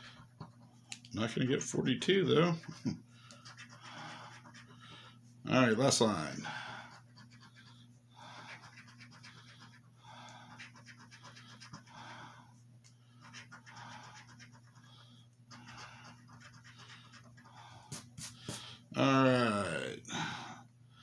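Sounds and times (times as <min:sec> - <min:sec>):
steady low hum: 0:00.0 - 0:21.0
coin scraping a scratch card: 0:13.2 - 0:14.8.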